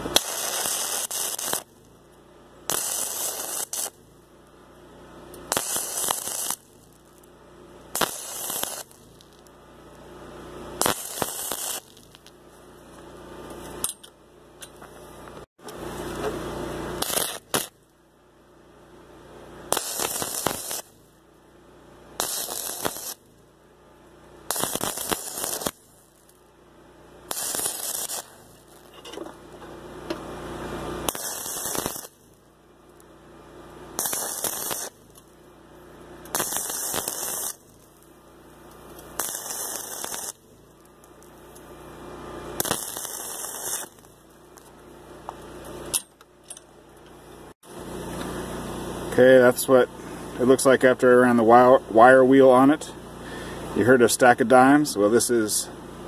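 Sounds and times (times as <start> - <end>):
welding arc crackling: 0.0 - 13.8, 15.0 - 18.1, 19.6 - 46.3.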